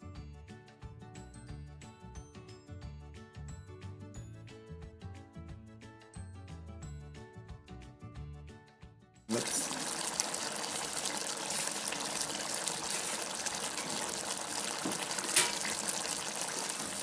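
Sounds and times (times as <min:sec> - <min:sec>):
meat sizzling in a pot: 0:09.3 - 0:17.0.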